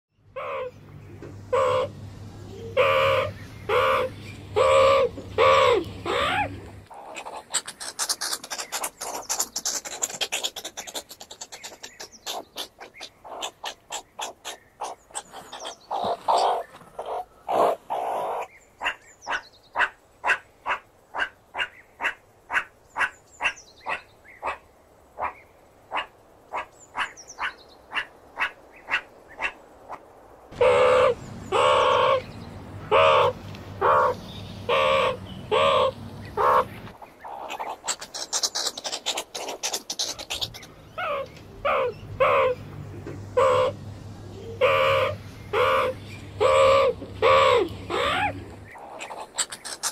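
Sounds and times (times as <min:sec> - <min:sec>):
meerkat calling: 0:00.4 - 0:00.8, 0:01.5 - 0:01.9, 0:02.7 - 0:24.6, 0:25.2 - 0:30.0, 0:30.6 - 0:32.2, 0:32.8 - 0:42.6, 0:43.4 - 0:43.8, 0:44.5 - 0:49.9
low hum: 0:40.6 - 0:48.8.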